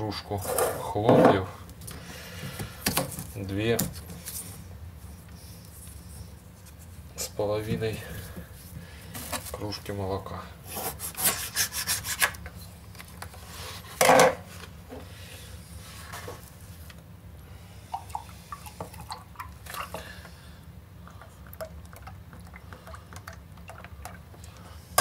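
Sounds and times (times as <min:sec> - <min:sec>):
milk pouring into a mug: 0:21.1 - 0:24.6.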